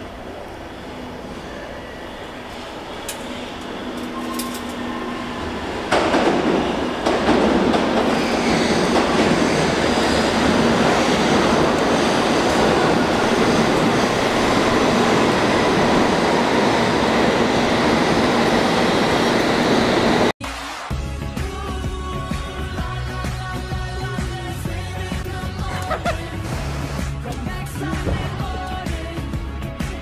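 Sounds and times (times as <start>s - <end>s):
train wheels rushing on track: 0.0s - 20.3s.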